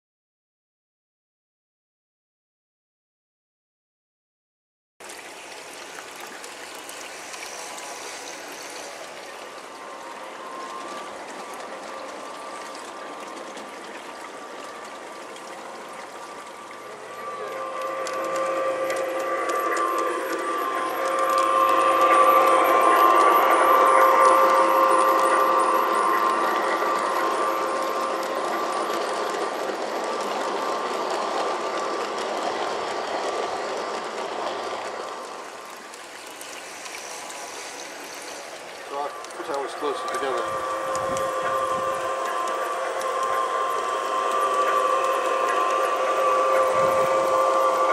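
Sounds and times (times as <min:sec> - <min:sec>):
faint motor whine: 0:05.0 - 0:47.9
model train wheels on rail: 0:05.0 - 0:47.9.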